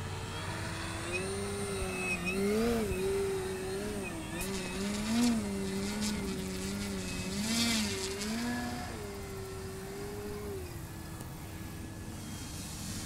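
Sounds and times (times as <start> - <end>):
model plane motor and propeller: 0.0 - 13.0.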